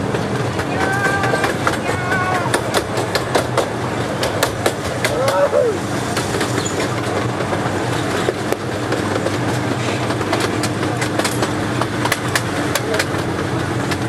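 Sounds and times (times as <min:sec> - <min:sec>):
vehicle rumble and hum: 0:00.0 - 0:14.0
sharp clicks and rattles: 0:06.1 - 0:14.0.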